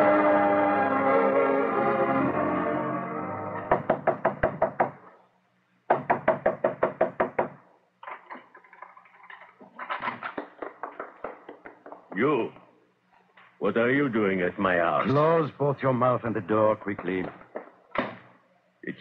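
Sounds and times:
rapid knocking on wooden door: 0:03.7 - 0:05.0, 0:05.9 - 0:07.6, 0:10.4 - 0:12.2.

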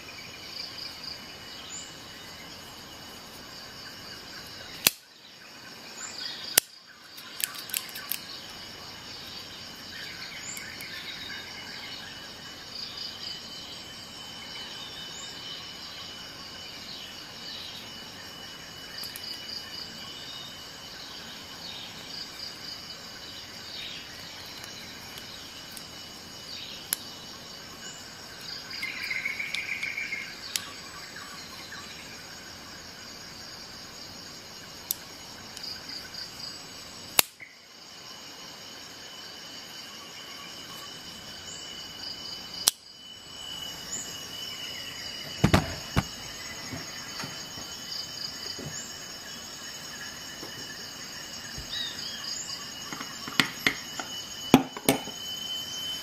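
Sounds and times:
crickets chirping: 0:00.0 - 0:56.0
shears clicking open and shut: 0:06.6 - 0:08.2.

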